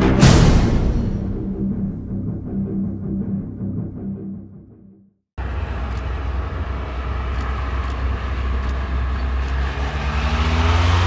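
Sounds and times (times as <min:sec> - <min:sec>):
engine accelerating: 0:05.4 - 0:11.0
road noise: 0:05.4 - 0:11.0
motorcycles riding past: 0:08.4 - 0:11.0.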